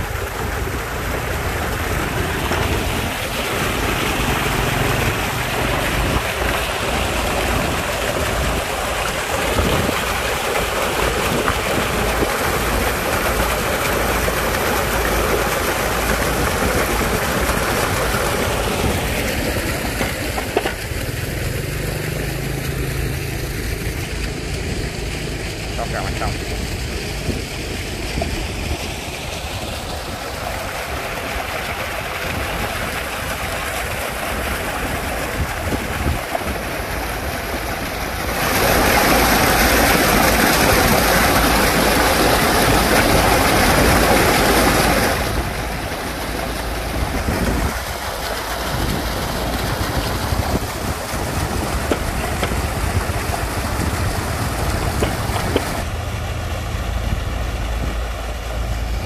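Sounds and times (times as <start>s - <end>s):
sand slurry pouring from pipes: 0.0s - 59.0s.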